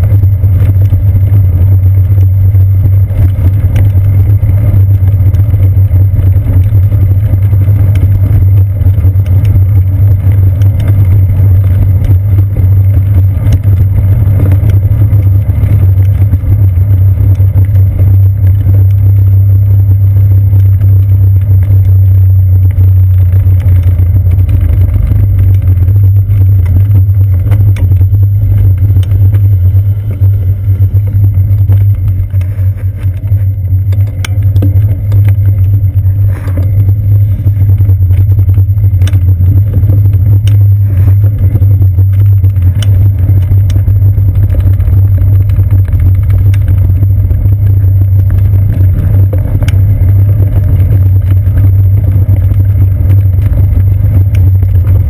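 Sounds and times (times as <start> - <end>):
bicycle tyres rumbling on planks: 0.0 - 55.0
small rattling clicks: 37.5 - 55.0.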